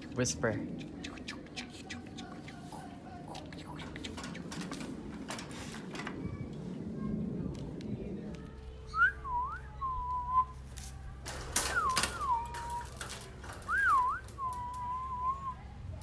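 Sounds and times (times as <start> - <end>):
person whistling calls: 13.7 - 15.5.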